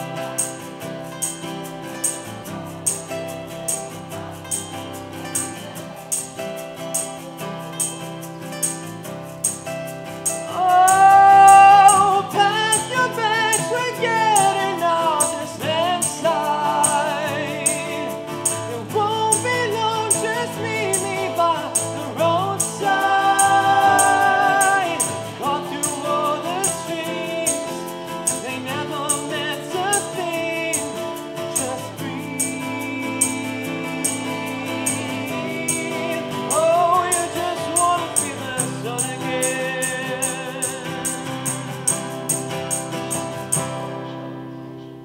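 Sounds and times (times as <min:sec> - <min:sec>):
tambourine and shaker beat: 0:00.0 - 0:44.1
acoustic guitars strummed: 0:00.0 - 0:45.0
man singing: 0:10.3 - 0:42.0.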